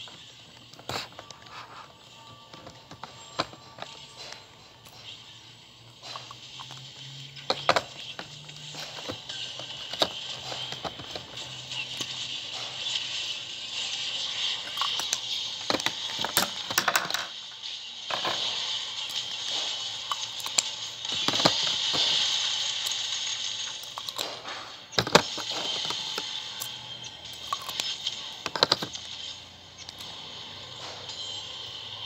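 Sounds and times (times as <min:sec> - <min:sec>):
plastic tubes clicking and rattling: 0:06.0 - 0:13.1, 0:13.9 - 0:17.4, 0:18.1 - 0:30.1.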